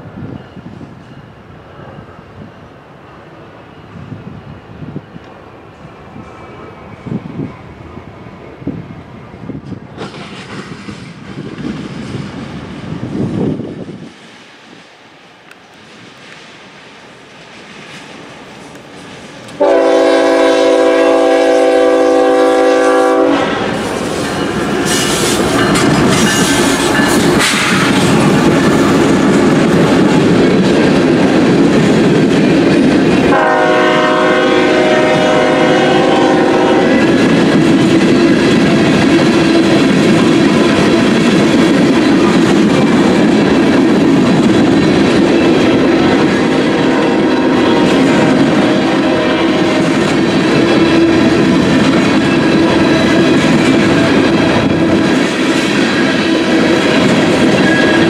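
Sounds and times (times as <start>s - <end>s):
train cars rolling past: 0.0s - 58.0s
train wheels clacking: 9.6s - 13.0s, 15.4s - 58.0s
locomotive air horn chord: 19.6s - 23.8s, 33.3s - 37.0s.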